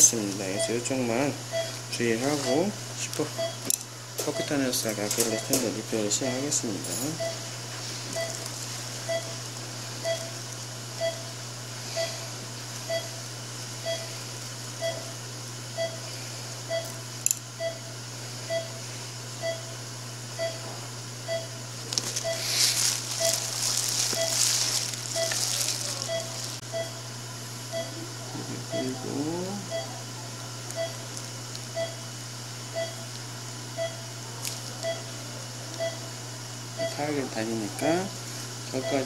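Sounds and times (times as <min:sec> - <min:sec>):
patient monitor beeping: 0:00.0 - 0:09.4, 0:10.0 - 0:10.4, 0:11.0 - 0:13.2, 0:13.8 - 0:15.2, 0:15.8 - 0:16.1, 0:16.7 - 0:17.0, 0:17.6 - 0:18.8, 0:19.4 - 0:19.8, 0:20.4 - 0:27.1, 0:27.7 - 0:30.0, 0:30.7 - 0:32.0, 0:32.7 - 0:33.1, 0:33.8 - 0:34.1, 0:34.8 - 0:36.1, 0:36.8 - 0:37.2, 0:38.7 - 0:39.0
low equipment hum: 0:00.0 - 0:39.0
plastic sleeve crinkling: 0:21.9 - 0:26.6.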